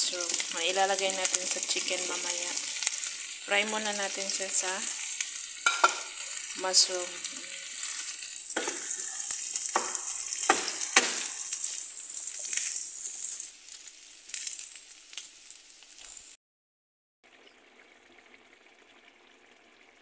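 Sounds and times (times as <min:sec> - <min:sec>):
mushrooms sizzling in a pan: 0:00.0 - 0:16.4
utensil scraping and knocking pan: 0:05.6 - 0:06.1, 0:08.6 - 0:11.4.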